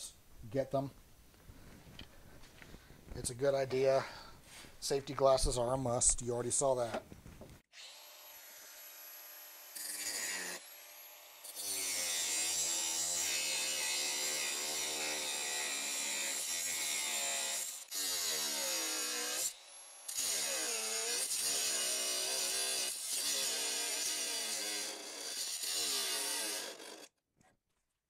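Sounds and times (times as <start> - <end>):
angle grinder cutting steel: 7.8 - 27.1.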